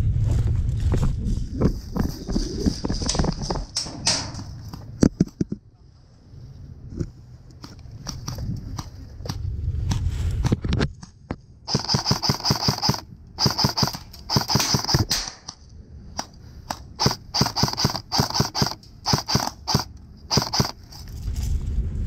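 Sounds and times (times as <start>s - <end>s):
airsoft rifle full-auto shots: 11.7s - 15.5s, 16.1s - 20.8s
airsoft rifle single shots: 11.7s - 15.5s.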